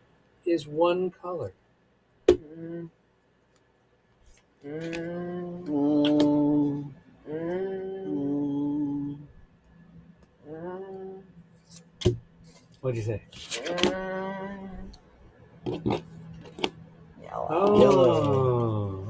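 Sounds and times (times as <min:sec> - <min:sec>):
person humming: 0:02.3 - 0:03.0, 0:04.6 - 0:09.4, 0:10.4 - 0:11.4, 0:13.6 - 0:15.0, 0:17.3 - 0:19.0.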